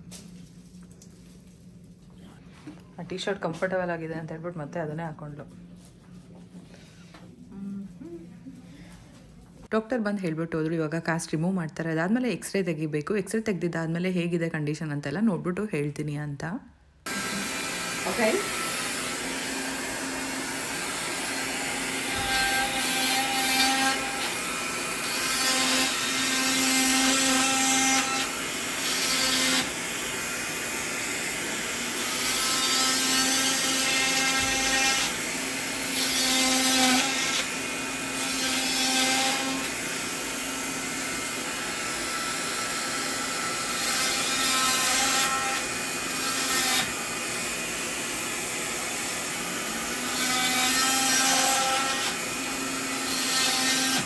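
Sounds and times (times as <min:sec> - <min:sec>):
electric cast saw humming: 0:17.0 - 0:54.0.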